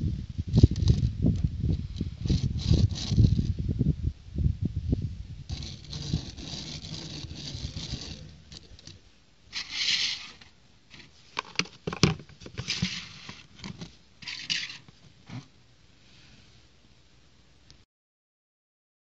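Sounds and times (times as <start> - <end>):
toy car wheels rolling on wood: 0.5 - 3.6, 5.5 - 15.4
cardboard box scraping on wood: 2.2 - 3.5, 5.5 - 15.5.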